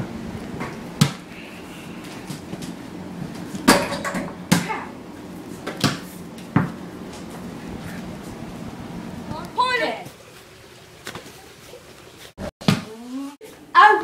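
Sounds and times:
rubber ball thumping: 12.6s - 13.0s.

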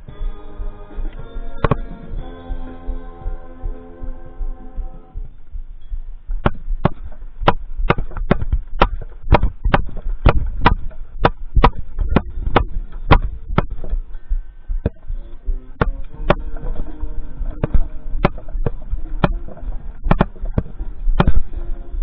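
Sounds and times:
band music: 0.0s - 5.2s
low rumble: 0.0s - 22.0s.

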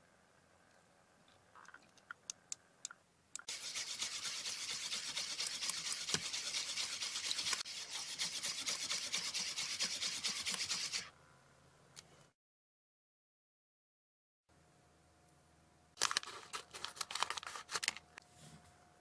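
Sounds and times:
whisk beating batter in bowl: 3.5s - 11.1s
whisk wires scraping bowl: 3.5s - 11.1s.

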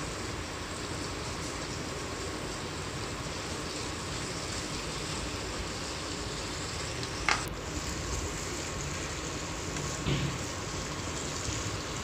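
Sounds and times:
food sizzling in oil: 0.0s - 12.0s.

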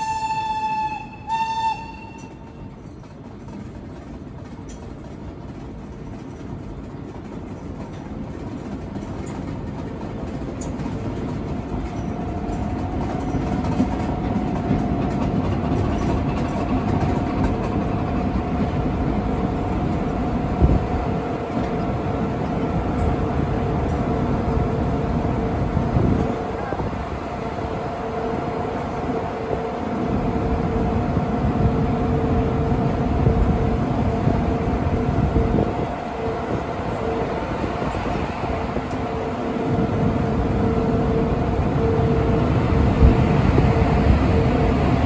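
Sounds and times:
train horn toot: 0.0s - 2.7s
train wheels rumbling on track: 0.0s - 45.0s.

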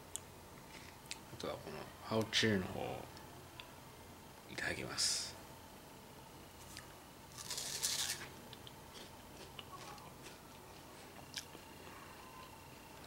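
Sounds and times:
crunchy bite into pear: 6.7s - 11.7s.

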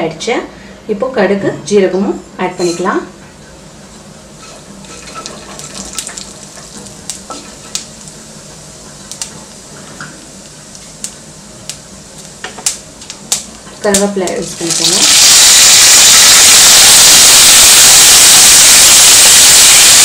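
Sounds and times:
seeds sizzling in hot oil: 4.4s - 20.0s.

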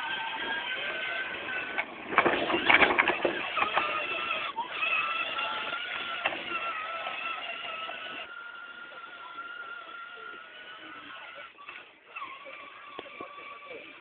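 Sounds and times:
toy car electric motor whine: 0.0s - 14.0s.

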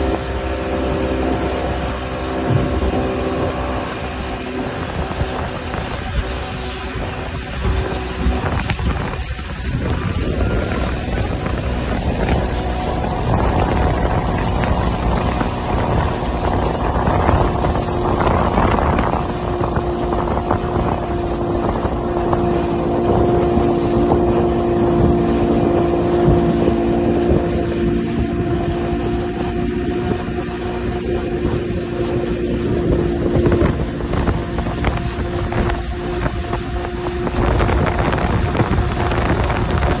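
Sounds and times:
outboard motor droning: 0.0s - 40.0s
rush of boat wake: 0.0s - 40.0s
wind buffeting microphone: 0.0s - 40.0s.

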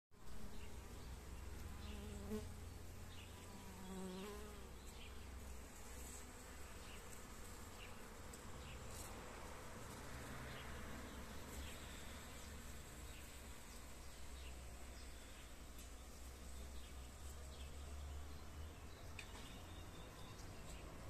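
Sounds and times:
honeybee buzzing in flight: 1.8s - 8.2s.

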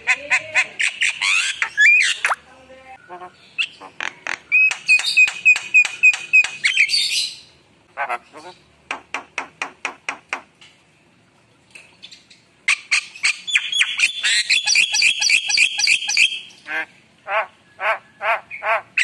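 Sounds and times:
bird squawking and whistling: 0.0s - 2.4s, 3.0s - 8.6s, 12.7s - 16.7s.

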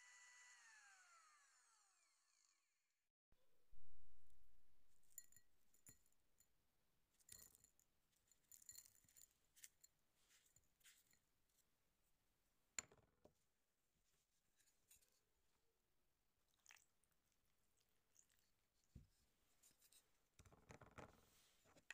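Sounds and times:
low rumble: 3.6s - 5.2s.

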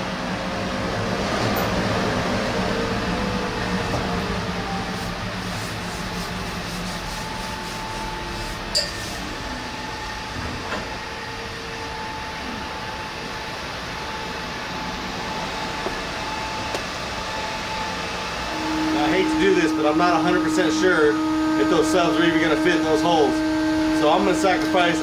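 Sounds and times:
workshop machinery hum: 0.0s - 25.0s
faint steady whine: 6.9s - 25.0s.

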